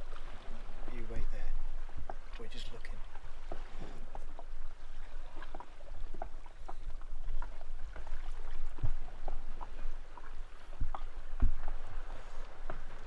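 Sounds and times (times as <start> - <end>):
water lapping against hull: 0.0 - 13.0.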